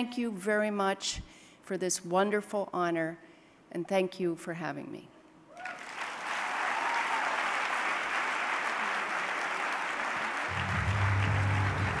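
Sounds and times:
audience applauding: 0:05.6 - 0:12.0
music with low bass: 0:10.5 - 0:12.0.

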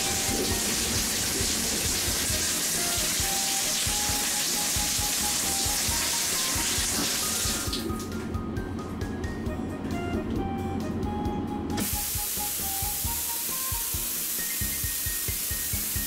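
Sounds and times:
shower spraying water: 0:00.0 - 0:08.1, 0:11.8 - 0:16.0
faint background music: 0:00.0 - 0:16.0.

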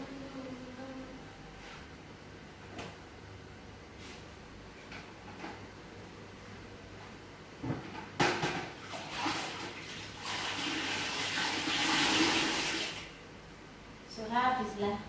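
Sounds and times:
plastic bucket knocking on tiled floor: 0:07.6 - 0:08.8
water sloshing in bucket: 0:08.8 - 0:12.8.

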